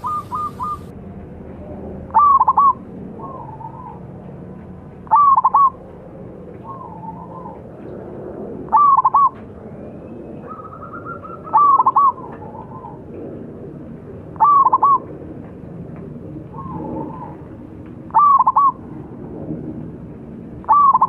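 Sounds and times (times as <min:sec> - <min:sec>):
dove cooing: 0:00.0 - 0:00.9, 0:02.0 - 0:04.2, 0:05.0 - 0:07.9, 0:08.6 - 0:09.4, 0:10.4 - 0:13.4, 0:14.2 - 0:15.2, 0:16.5 - 0:18.9, 0:20.6 - 0:21.0.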